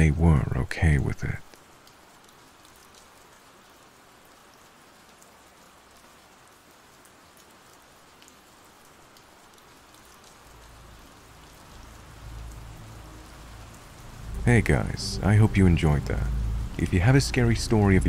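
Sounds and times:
rain pattering: 0:00.0 - 0:18.0
low rumble: 0:11.5 - 0:18.0.

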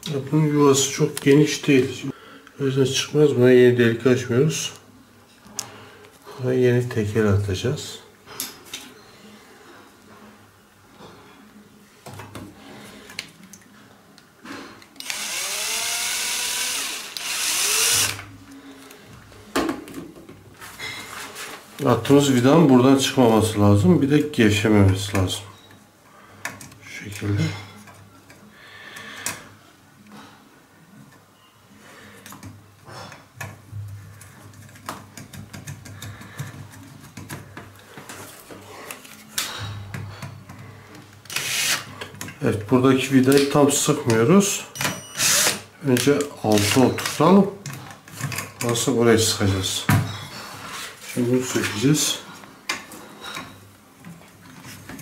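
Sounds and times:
power drill driving a screw: 0:15.0 - 0:18.3, 0:41.3 - 0:41.9, 0:45.1 - 0:45.6.

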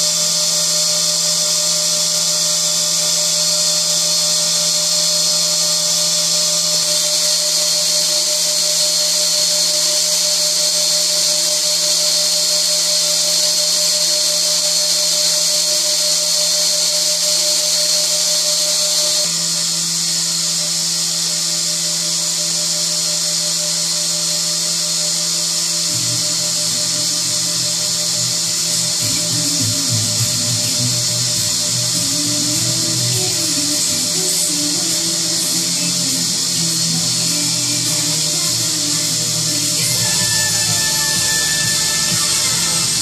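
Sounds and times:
milling machine spindle whine: 0:00.0 - 0:43.0
low pulsing: 0:25.8 - 0:43.0.

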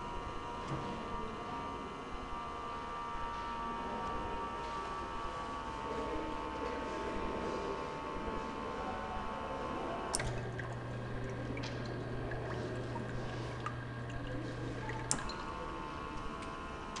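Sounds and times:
conveyor belt motor whining: 0:00.0 - 0:17.0
filler machine humming: 0:09.4 - 0:17.0
liquid filling a container: 0:10.1 - 0:17.0.

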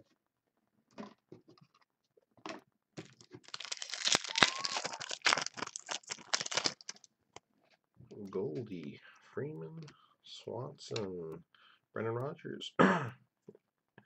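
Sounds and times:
foil wrapper tearing and crinkling: 0:03.0 - 0:07.1.

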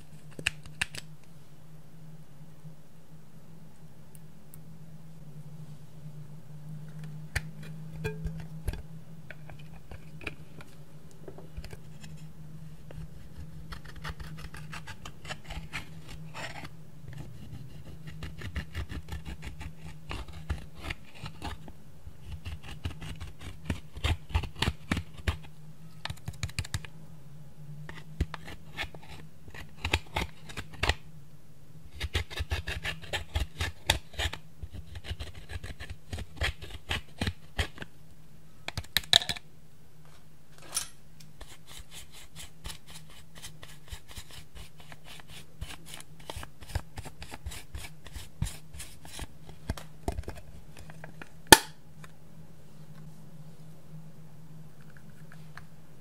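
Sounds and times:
tool scraping eyeshadow in plastic pans: 0:12.9 - 0:26.8, 0:41.4 - 0:51.3.

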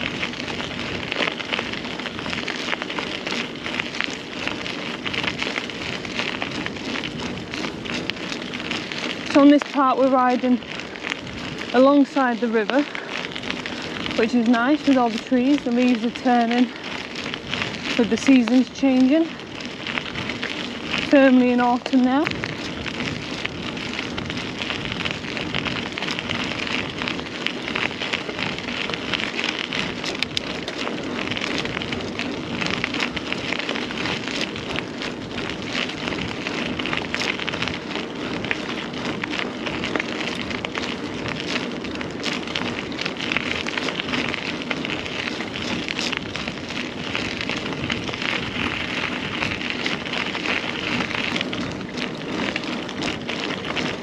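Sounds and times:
bike tyres rolling on rough trail: 0:00.0 - 0:54.0.

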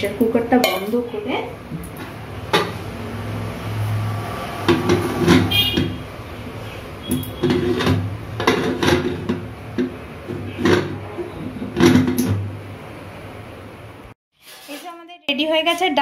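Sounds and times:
high metal scrape: 0:14.4 - 0:14.9.

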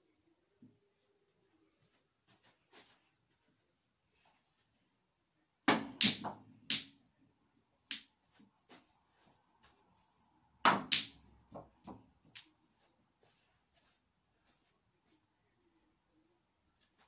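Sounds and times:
cue striking snooker balls: 0:05.7 - 0:07.0, 0:10.6 - 0:12.5.

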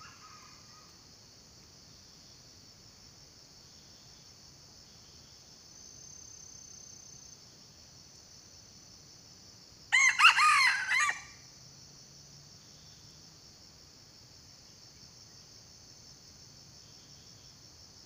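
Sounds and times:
insects droning: 0:00.0 - 0:18.0
rooster crowing: 0:09.9 - 0:11.4.

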